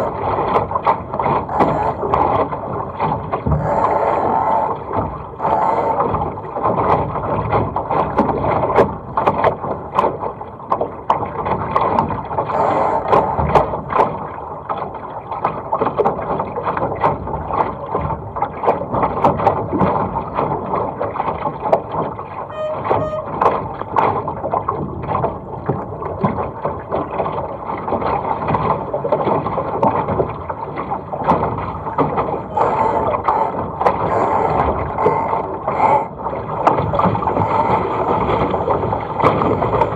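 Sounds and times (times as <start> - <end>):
hull slapping on waves: 0.0 - 39.9
water rushing along hull: 0.0 - 39.9
brief squeak: 22.5 - 23.5.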